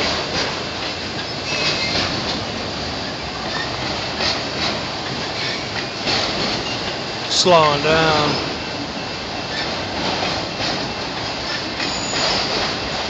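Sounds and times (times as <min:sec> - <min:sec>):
wheels clicking over rail joints: 0:00.0 - 0:07.5, 0:09.4 - 0:13.0
train wheels rumbling on rail: 0:00.0 - 0:13.0
faint wheel squeal: 0:01.2 - 0:02.1, 0:11.5 - 0:13.0.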